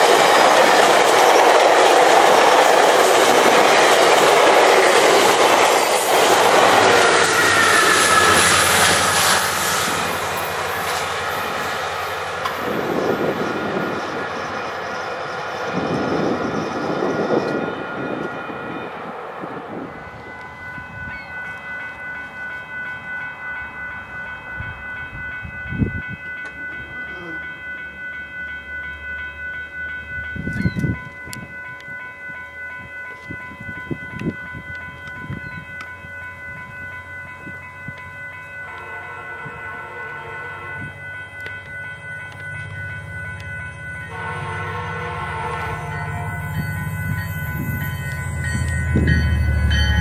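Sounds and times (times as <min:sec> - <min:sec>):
diesel train rumble: 0:00.0 - 0:50.0
high ringing: 0:00.0 - 0:50.0
train horn blast: 0:06.6 - 0:10.2, 0:38.7 - 0:41.0, 0:44.1 - 0:46.5.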